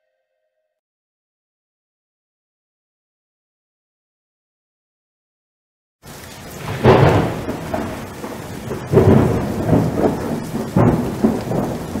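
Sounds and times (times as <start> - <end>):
steady rain: 6.0 - 12.0
thunder rolling: 6.4 - 12.0.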